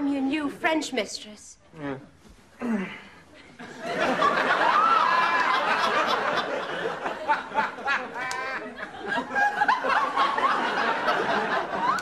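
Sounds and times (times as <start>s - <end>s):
studio audience laughing: 3.6s - 12.0s.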